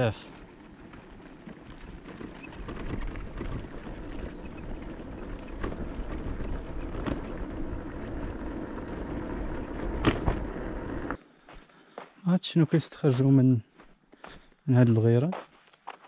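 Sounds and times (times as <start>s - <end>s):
bicycle tyre noise on road: 0.0s - 12.1s.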